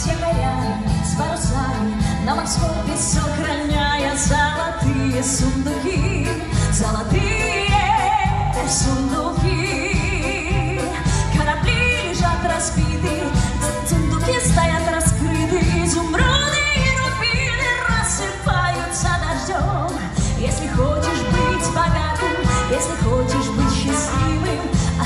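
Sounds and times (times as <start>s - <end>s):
woman singing into a microphone: 0.0s - 25.0s
violins and brass: 20.7s - 25.0s.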